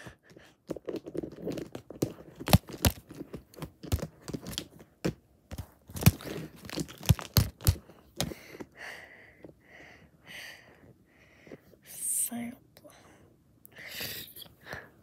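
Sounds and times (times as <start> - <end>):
plastic figurines clacking: 5.5 - 8.3
breathy whisper: 11.5 - 15.0.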